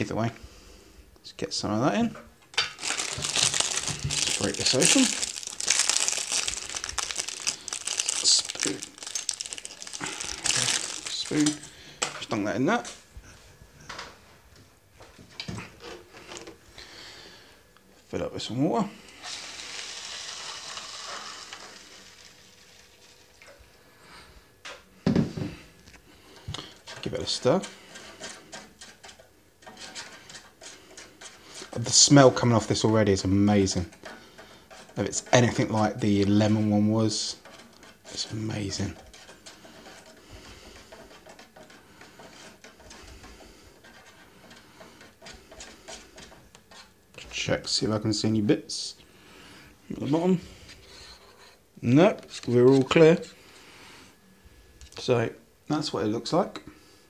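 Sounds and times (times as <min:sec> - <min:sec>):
spoon stirring in a cup: 0:26.4 - 0:47.4.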